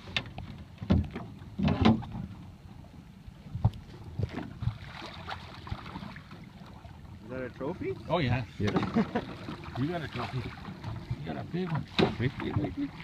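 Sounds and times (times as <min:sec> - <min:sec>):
wind rumble on microphone: 0:00.0 - 0:07.3.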